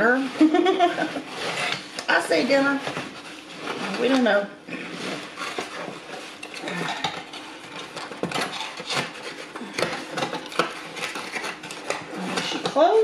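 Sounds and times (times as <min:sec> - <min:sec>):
cardboard box rustling and scraping: 0:00.0 - 0:13.0.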